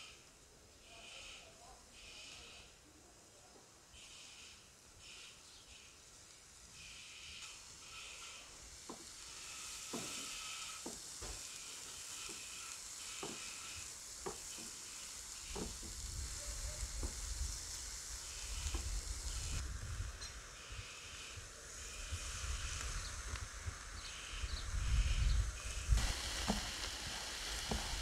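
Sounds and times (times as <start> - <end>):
vegetables sizzling in grill pan: 5.7 - 28.0.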